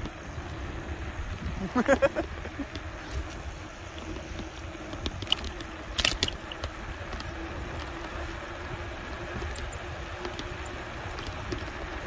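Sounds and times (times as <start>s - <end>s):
faint steady hum: 0.0s - 12.0s
tyre rumble on asphalt: 0.0s - 12.0s
wind buffeting microphone: 0.0s - 12.0s
sharp clicks and rattles: 1.8s - 8.1s.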